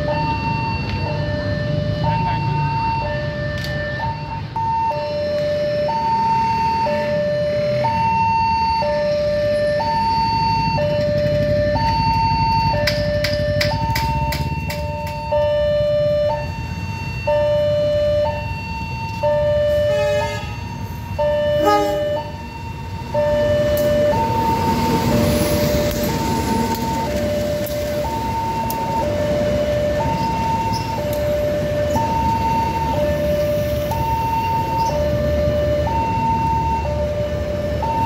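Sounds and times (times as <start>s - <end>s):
level crossing alarm two-tone: 0.0s - 38.0s
train wheels on rails: 23.1s - 37.9s.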